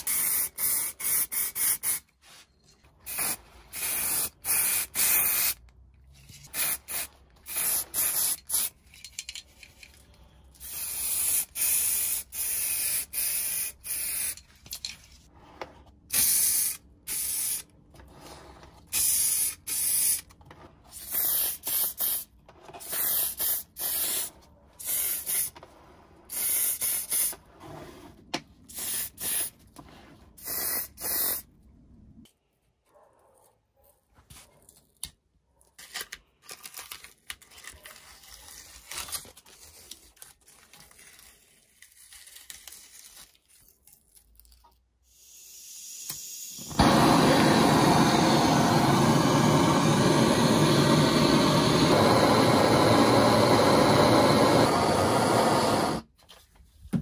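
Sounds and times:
spray paint can hissing: 0:00.0 - 0:02.0, 0:03.1 - 0:05.6, 0:06.5 - 0:08.8, 0:10.6 - 0:14.4, 0:16.1 - 0:17.7, 0:18.9 - 0:20.3, 0:21.0 - 0:25.6, 0:26.3 - 0:27.4, 0:28.7 - 0:29.6, 0:30.4 - 0:31.5.

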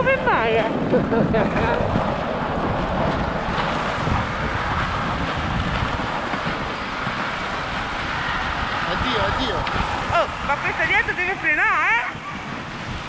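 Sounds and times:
sled runners scraping snow: 0:00.0 - 0:13.0
wind buffeting microphone: 0:00.0 - 0:13.0.

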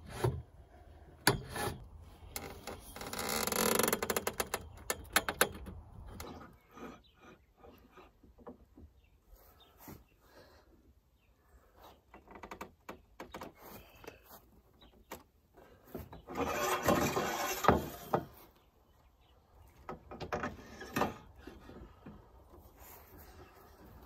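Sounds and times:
metal tube scraping and creaking: 0:00.0 - 0:08.2, 0:16.2 - 0:18.5, 0:20.2 - 0:24.0.

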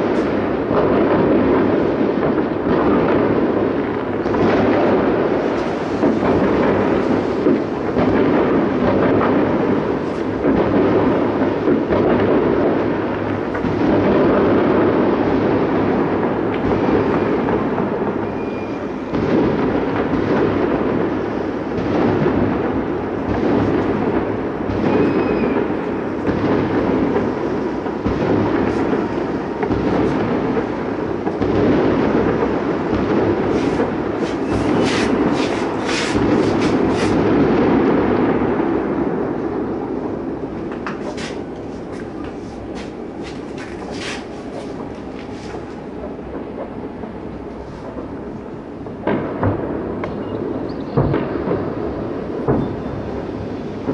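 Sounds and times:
fireworks rumbling and banging: 0:00.0 - 0:53.9
firework whistles: 0:18.1 - 0:19.8, 0:24.7 - 0:37.5, 0:40.9 - 0:45.8, 0:50.1 - 0:53.8.

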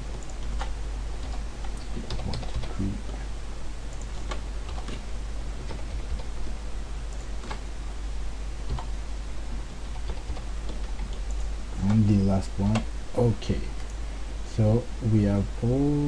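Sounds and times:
steady low hum: 0:00.0 - 0:16.0
computer keys clicking: 0:00.1 - 0:03.0, 0:03.9 - 0:06.3, 0:07.1 - 0:07.6, 0:08.7 - 0:08.9, 0:09.8 - 0:12.9.

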